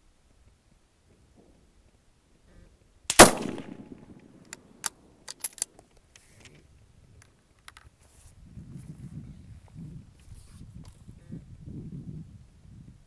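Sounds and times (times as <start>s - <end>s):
rifle shot with echo: 3.1s - 4.8s
rifle bolt clicks: 3.1s - 5.7s.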